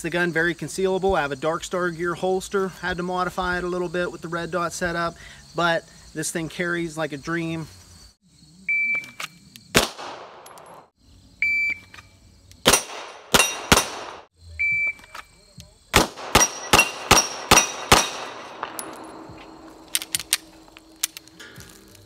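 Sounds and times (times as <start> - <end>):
pistol shots: 9.7 - 10.9, 12.6 - 14.3, 15.9 - 20.4.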